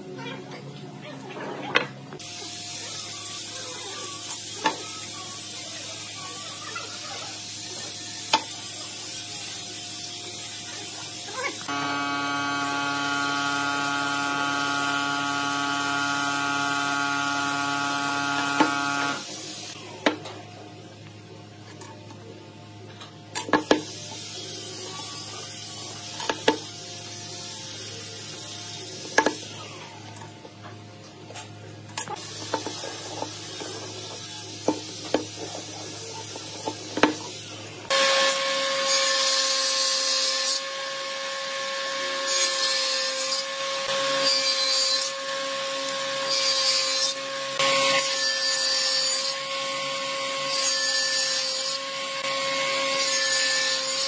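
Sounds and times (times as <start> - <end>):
table saw running: 11.4 - 19.8
machine hum: 11.7 - 19.2.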